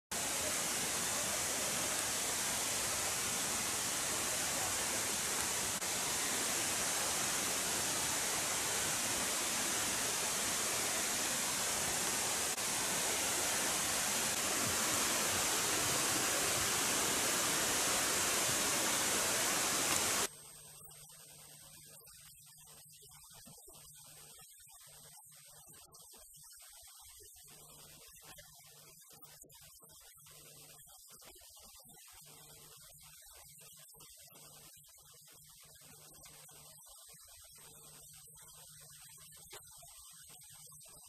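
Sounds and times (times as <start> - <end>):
steady hiss: 0.1 - 20.3.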